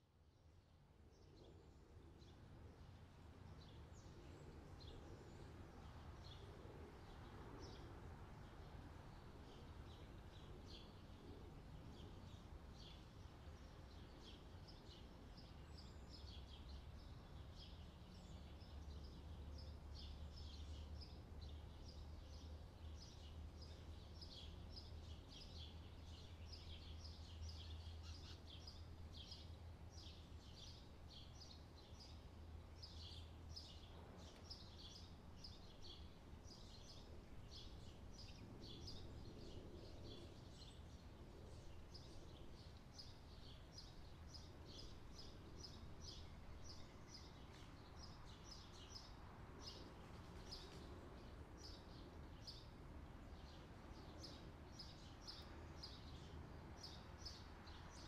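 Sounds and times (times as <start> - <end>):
small birds chirping: 1.2 - 58.0.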